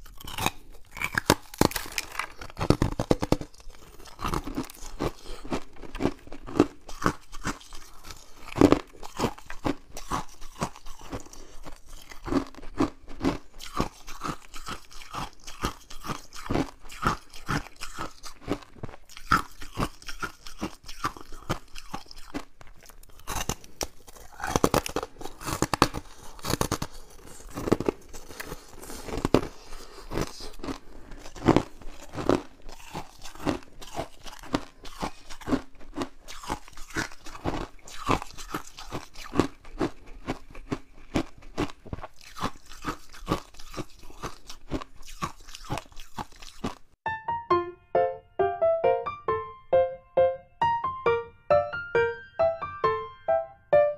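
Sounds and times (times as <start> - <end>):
crunching frost: 0.0 - 14.7.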